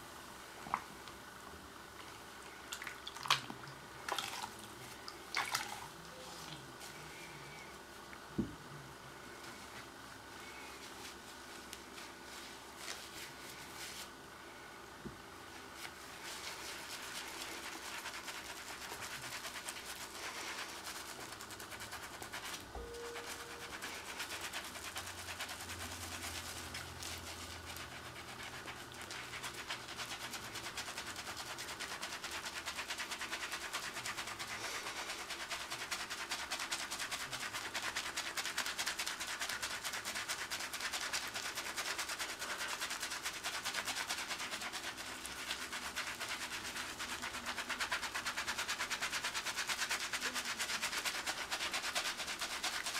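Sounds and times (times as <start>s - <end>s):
hands scrubbing: 15.8s - 52.9s.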